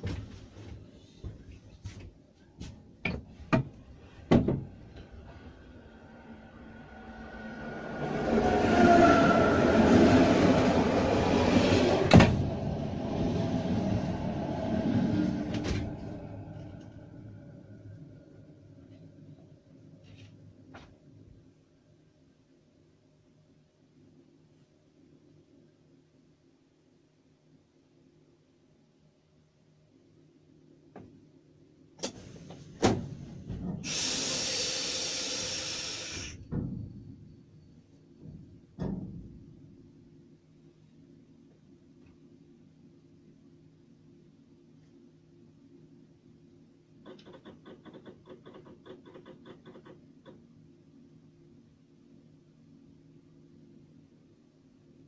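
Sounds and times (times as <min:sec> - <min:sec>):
passing train wheel noise: 0:03.8 - 0:18.8, 0:32.0 - 0:39.6
thump: 0:04.3 - 0:04.6, 0:12.1 - 0:12.4, 0:36.4 - 0:37.2, 0:38.2 - 0:39.5
compressed air hissing: 0:33.8 - 0:36.4.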